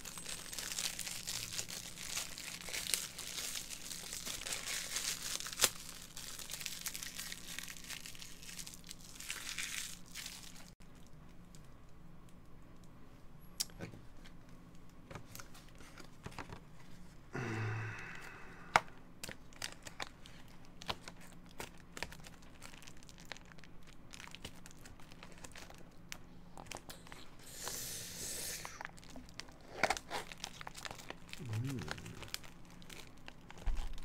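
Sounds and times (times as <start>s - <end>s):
food packaging clicks and crinkles: 0.0s - 12.9s, 19.2s - 27.4s, 28.7s - 34.0s
packaging tearing: 0.1s - 10.7s, 19.2s - 25.8s, 28.7s - 34.0s.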